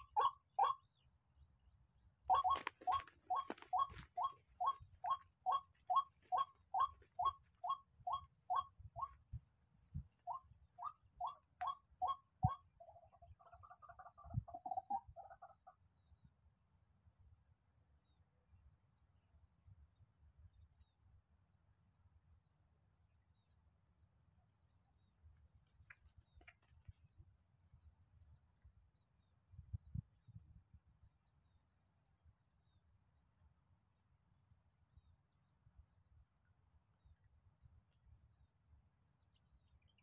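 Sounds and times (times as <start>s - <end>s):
bird call with trill: 0.0s - 0.9s, 2.3s - 9.2s, 10.3s - 13.0s.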